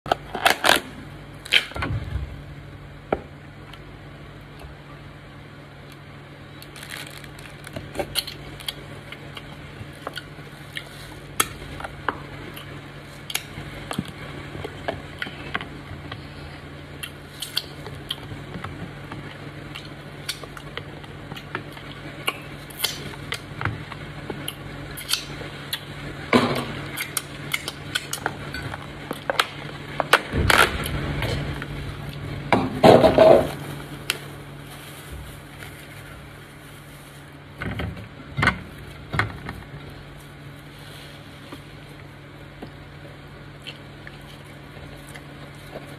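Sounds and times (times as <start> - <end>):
low hum: 0.1 - 45.9
plastic bag crinkling: 6.6 - 11.3, 33.2 - 37.6.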